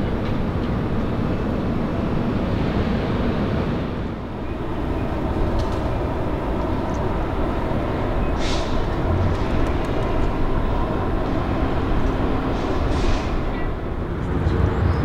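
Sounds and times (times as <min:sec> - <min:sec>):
city traffic rumble: 0:00.0 - 0:15.0.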